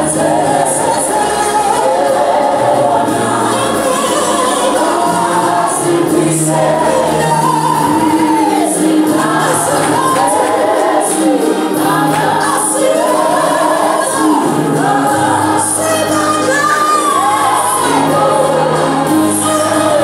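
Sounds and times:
congregation singing a hymn: 0:00.0 - 0:20.0.

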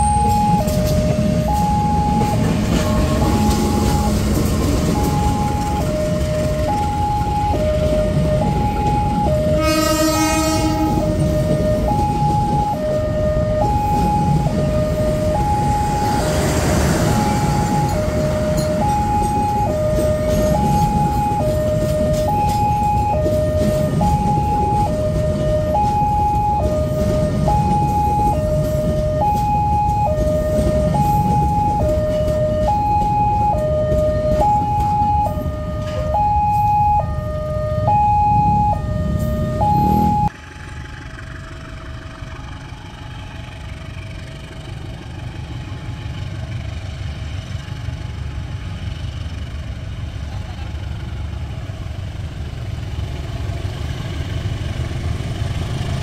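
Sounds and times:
level crossing two-tone alarm: 0:00.0 - 0:40.3
train running past: 0:00.0 - 0:56.0
locomotive horn blast: 0:09.4 - 0:11.6.

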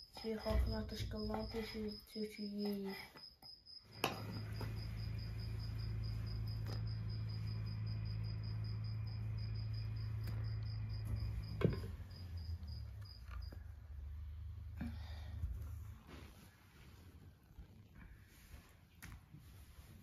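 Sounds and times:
cricket chirping: 0:00.0 - 0:14.2
steady low hum: 0:03.9 - 0:20.0.

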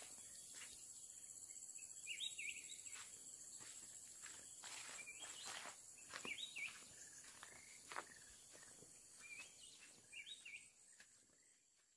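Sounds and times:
footsteps on dirt path: 0:00.0 - 0:01.0, 0:02.6 - 0:11.9.

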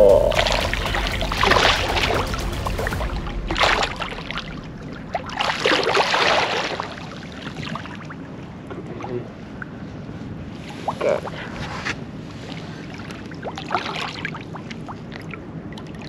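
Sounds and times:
fish thrashing and splashing water: 0:00.3 - 0:08.5, 0:12.4 - 0:16.0.

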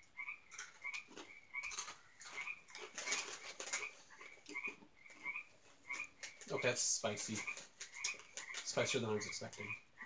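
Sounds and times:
crunchy snack chewing: 0:00.6 - 0:05.3.

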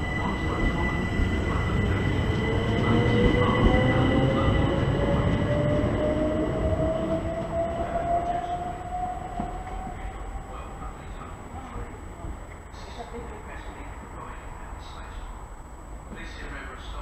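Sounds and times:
train traction motor whine: 0:00.0 - 0:11.8
train wheels rumbling: 0:00.0 - 0:17.0.

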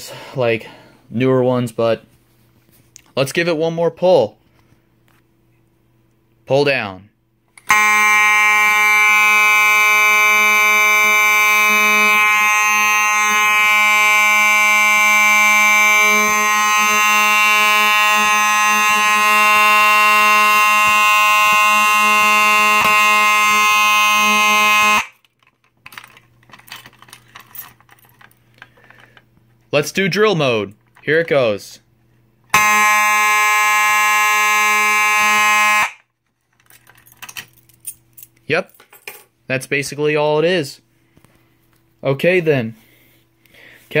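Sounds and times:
fire alarm horn buzzing tone: 0:07.6 - 0:25.2, 0:32.5 - 0:36.1.

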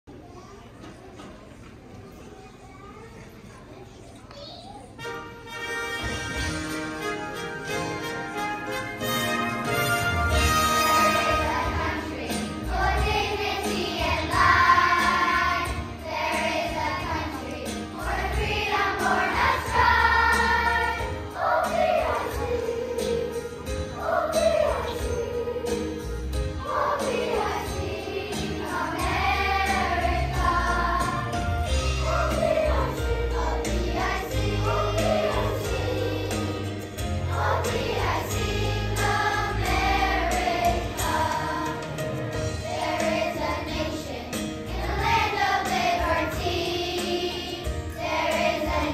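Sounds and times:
instrumental accompaniment: 0:05.0 - 0:48.9
children's choir singing: 0:10.1 - 0:48.9.

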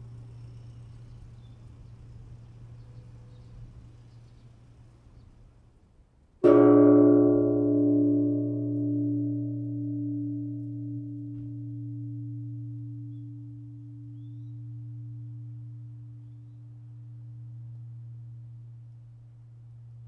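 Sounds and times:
large temple bell ringing: 0:06.4 - 0:20.0.

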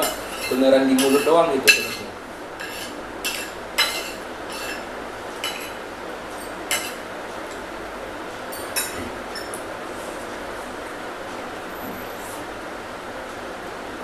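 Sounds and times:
cutlery clinking on plates: 0:00.0 - 0:04.8, 0:05.4 - 0:05.8, 0:06.4 - 0:07.0, 0:08.5 - 0:09.6.

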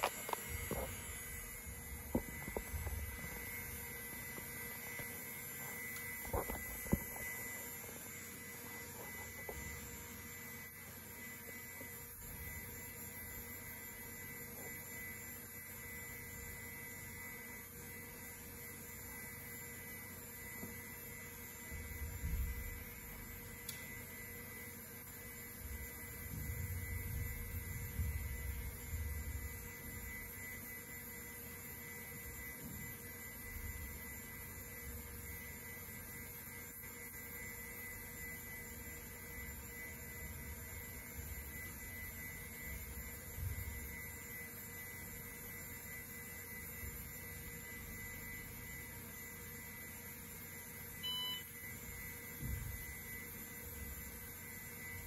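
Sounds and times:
computer fans humming: 0:00.0 - 0:34.0
thin electronic tones: 0:00.0 - 0:55.0
short beep: 0:51.0 - 0:51.6.

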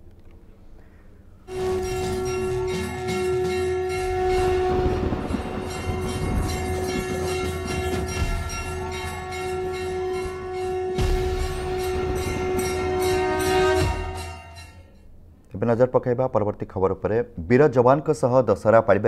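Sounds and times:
festive drumming: 0:01.5 - 0:14.9
conch shell blown: 0:01.5 - 0:15.0
bell strikes: 0:01.5 - 0:15.1.

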